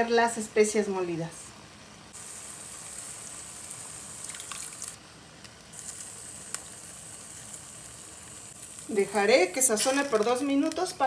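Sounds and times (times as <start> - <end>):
steaks sizzling in a frying pan: 2.2 - 5.0, 5.8 - 11.0.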